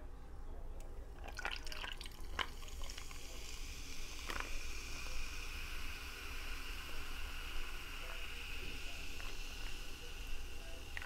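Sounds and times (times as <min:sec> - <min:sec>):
carbonated drink fizzing: 0:01.2 - 0:11.0.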